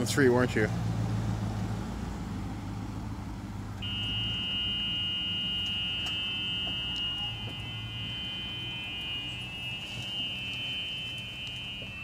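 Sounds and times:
reverse warning buzzer: 0:03.8 - 0:12.0.

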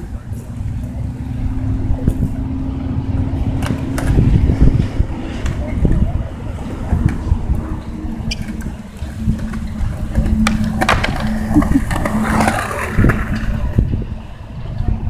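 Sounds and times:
skateboard wheels rolling on concrete: 0:00.0 - 0:15.0
skateboard clacks: 0:03.5 - 0:04.3, 0:05.4 - 0:13.8.

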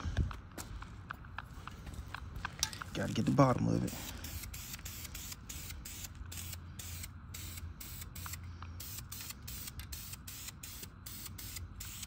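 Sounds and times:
spray can hissing bursts: 0:04.2 - 0:12.0.

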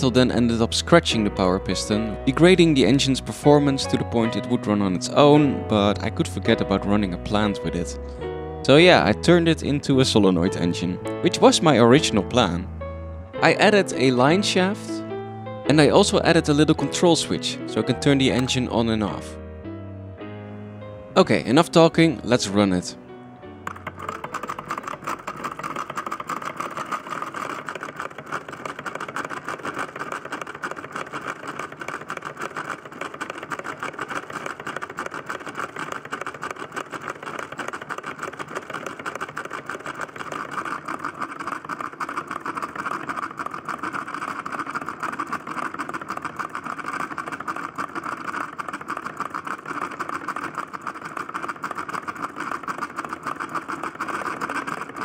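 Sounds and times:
model engine clattering: 0:00.0 - 0:08.0, 0:23.6 - 0:55.0.

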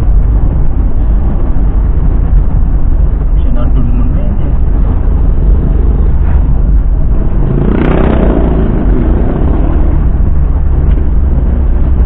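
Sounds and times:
low rumble of car cabin: 0:00.0 - 0:12.0
louder engine sound: 0:04.8 - 0:12.0.

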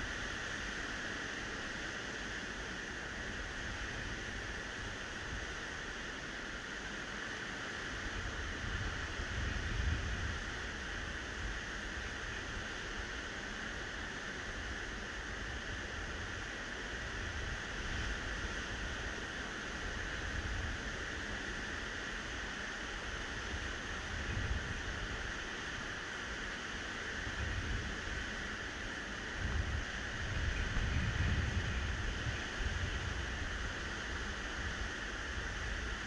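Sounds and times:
wind buffeting microphone: 0:29.4 - 0:33.7.

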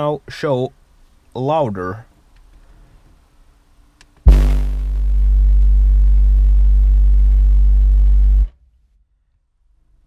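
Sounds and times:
loud subwoofer bass tone: 0:04.3 - 0:08.7.

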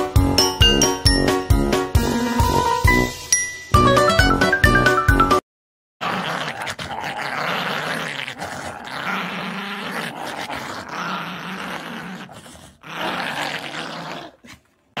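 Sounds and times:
small dog growling in play: 0:06.0 - 0:15.0.

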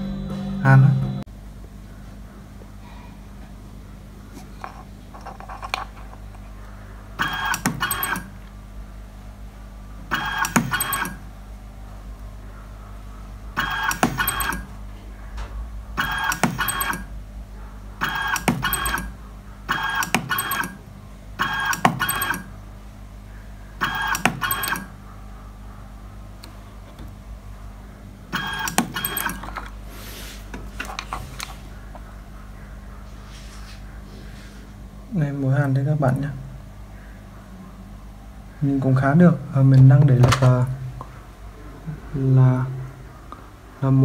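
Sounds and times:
transformer mains hum: 0:00.0 - 0:44.0
spot welder buzzing bursts: 0:10.1 - 0:11.3, 0:13.6 - 0:14.8, 0:16.0 - 0:17.2, 0:18.0 - 0:22.6.

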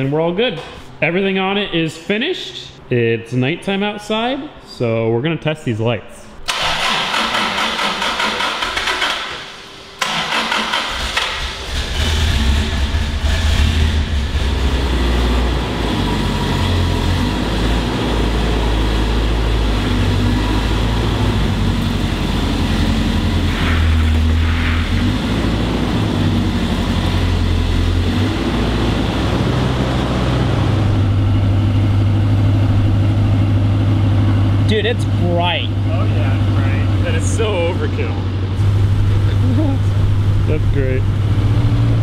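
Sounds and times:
car engine running: 0:11.0 - 0:42.0.

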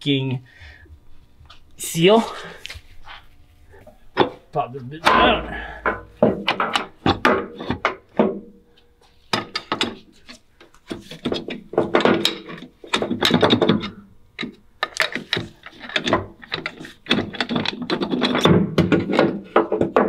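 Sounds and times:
hand tools knocking on metal: 0:05.0 - 0:07.3.

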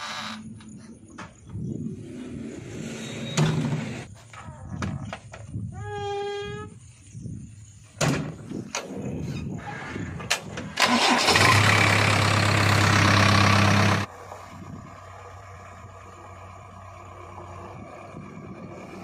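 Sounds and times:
diesel engine running: 0:10.8 - 0:19.0.

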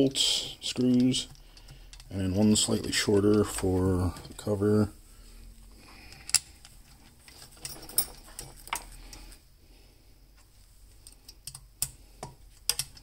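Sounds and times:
screwdriver clicking on metal cover: 0:00.7 - 0:04.3.

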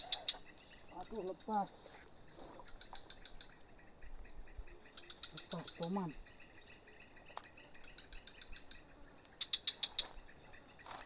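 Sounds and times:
insects droning: 0:00.0 - 0:11.0
quick run of ticks: 0:07.3 - 0:11.0.

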